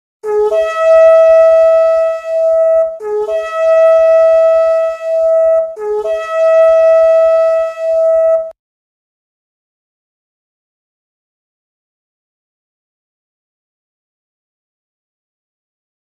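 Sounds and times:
ram's horn blasts: 0.2s - 8.5s.

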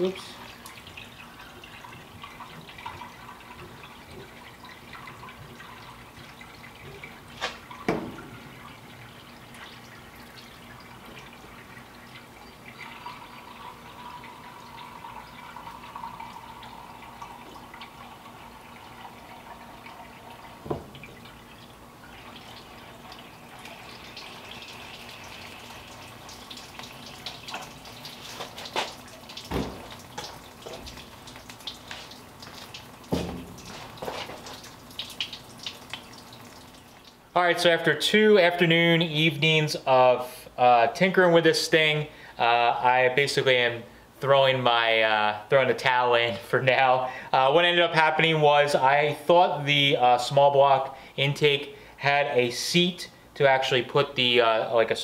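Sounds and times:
water glugging from jug: 0.4s - 37.2s
sharp knocks: 7.8s - 8.4s, 33.1s - 33.6s.

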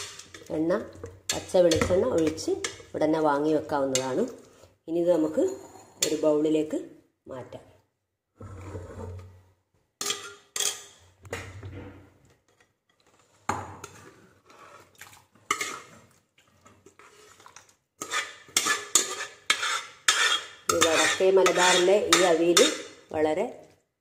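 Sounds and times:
metal pot clinking and scraping: 0.0s - 6.4s, 10.0s - 11.6s, 12.3s - 23.1s.

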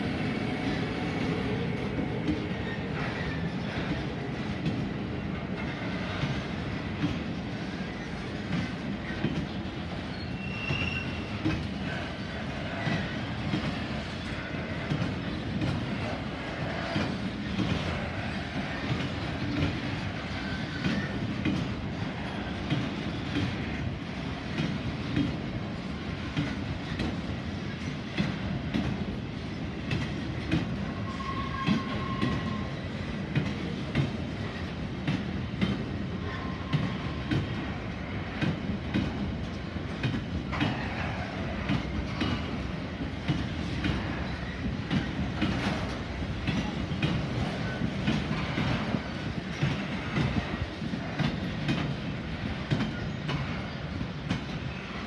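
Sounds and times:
train wheels rumbling on rail: 0.0s - 55.0s
wheels clacking over rail joints: 0.4s - 55.0s
faint wheel squeal: 10.0s - 11.4s, 31.0s - 32.7s.

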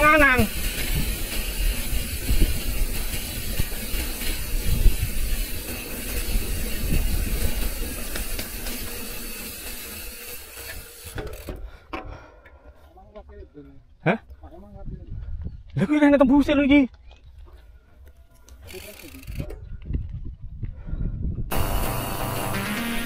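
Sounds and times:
wind rushing over microphone: 0.0s - 8.1s, 19.3s - 21.6s
bike tyre rumble: 0.0s - 11.8s
bike knocking on bumps: 0.0s - 12.2s.

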